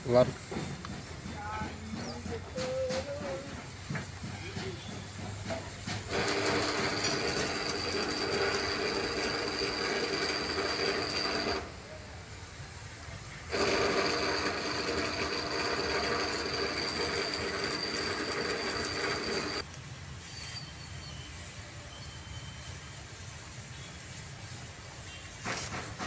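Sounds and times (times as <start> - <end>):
machine whirring: 2.2 - 11.8, 13.5 - 19.6
held machine tones: 6.1 - 11.7, 13.5 - 19.6.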